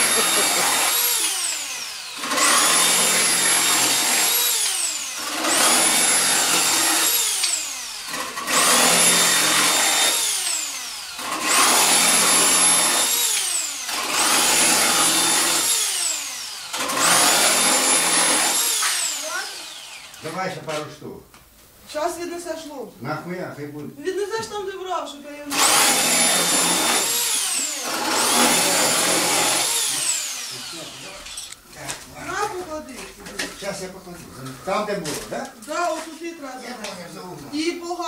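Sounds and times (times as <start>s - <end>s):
angle grinder cutting metal: 0.0s - 20.6s, 25.5s - 31.6s.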